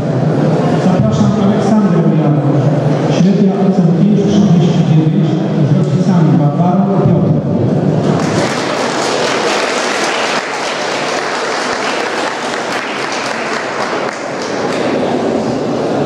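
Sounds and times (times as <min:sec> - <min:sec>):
audience applauding: 0:08.0 - 0:15.2.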